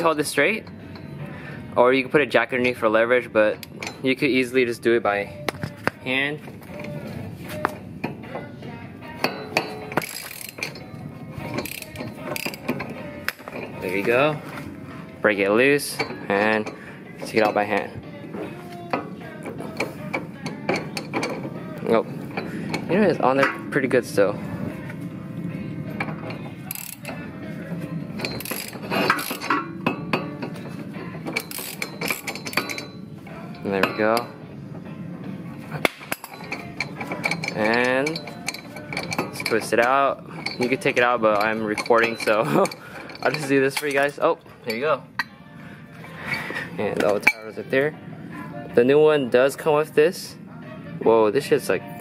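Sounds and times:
ratchet clicking: 0:09.2 - 0:13.7, 0:26.2 - 0:27.2, 0:28.2 - 0:30.5, 0:31.3 - 0:33.0, 0:36.1 - 0:44.2.

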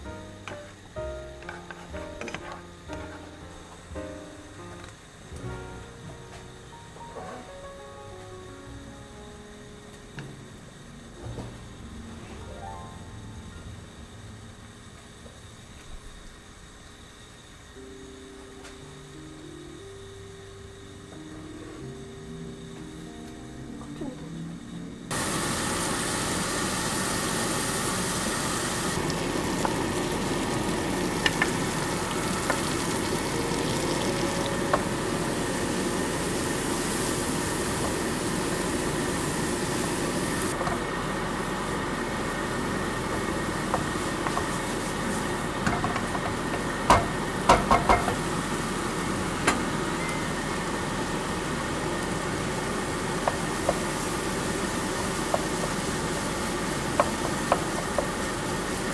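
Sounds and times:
food sizzling in a frying pan: 0:25.1 - 0:58.9
wooden spatula knocking pan: 0:45.6 - 0:48.2.

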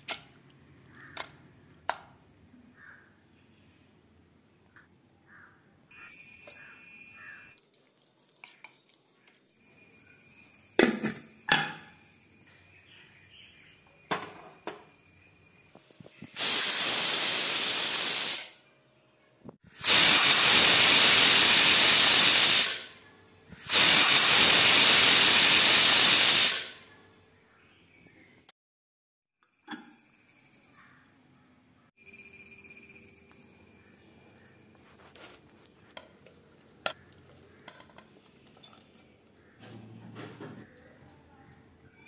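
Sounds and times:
pressure cooker whistling: 0:05.9 - 0:07.6, 0:19.8 - 0:22.9, 0:23.7 - 0:26.8
pressure cooker hissing steam: 0:16.3 - 0:18.6, 0:19.7 - 0:22.9, 0:23.6 - 0:26.8.

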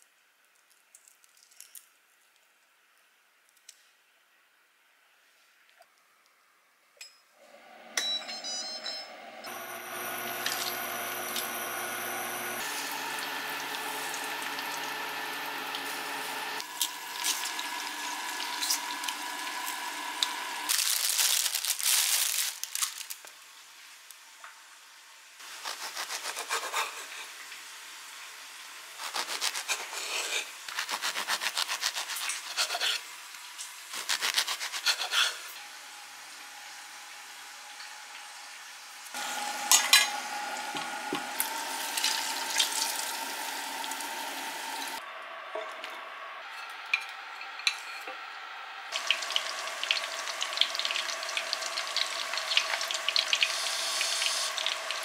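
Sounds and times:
broth sizzling and bubbling: 0:09.5 - 0:20.9, 0:40.4 - 0:45.0, 0:48.9 - 0:55.0
bread knife sawing through loaf: 0:25.5 - 0:27.3, 0:29.0 - 0:33.0, 0:33.9 - 0:35.5.

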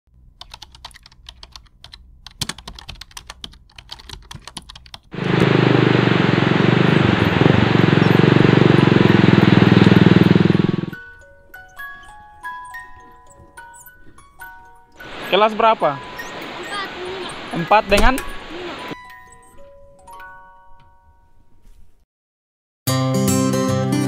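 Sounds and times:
motorcycle engine: 0:05.2 - 0:11.2.

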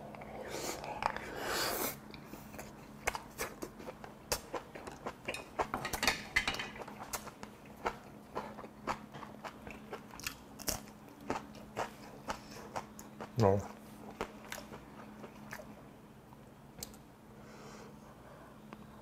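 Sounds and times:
close chewing with mouth clicks: 0:06.8 - 0:15.8.

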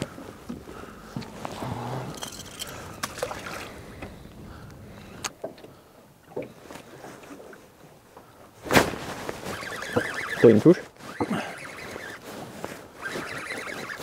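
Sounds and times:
water lapping against boat hull: 0:00.0 - 0:08.6.

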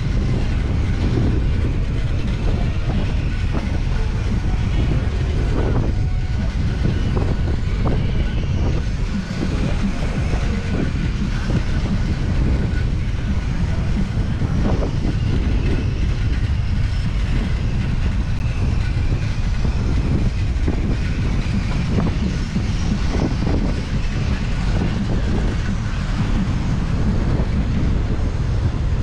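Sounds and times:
wind on microphone: 0:00.0 - 0:29.0.

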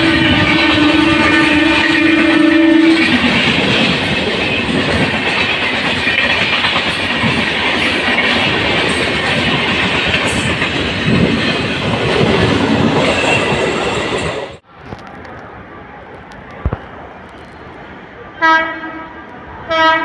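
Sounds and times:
train horn: 0:00.0 - 0:03.3, 0:18.4 - 0:20.0
train wheels rumbling on rails: 0:00.0 - 0:20.0.

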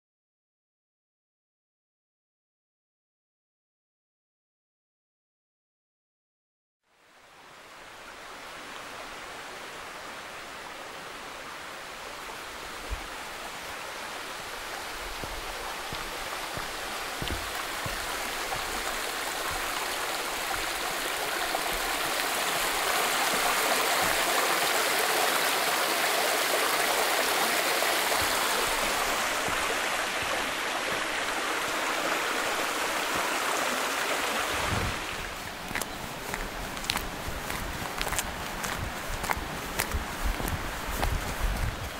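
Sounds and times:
stream rushing over rocks: 0:07.0 - 0:41.9
footsteps crunching on gravel: 0:15.2 - 0:20.8, 0:34.9 - 0:41.9.

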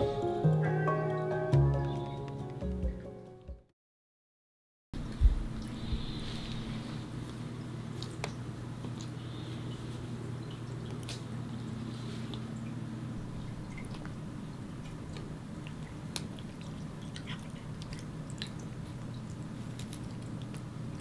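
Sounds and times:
steady low hum: 0:05.0 - 0:21.0
cat chewing grass: 0:14.8 - 0:21.0.

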